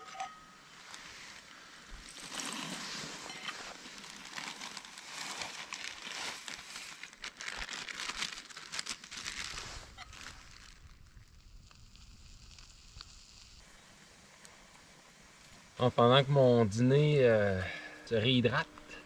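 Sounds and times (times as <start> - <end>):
plastic bag crinkling: 2.1 - 13.2.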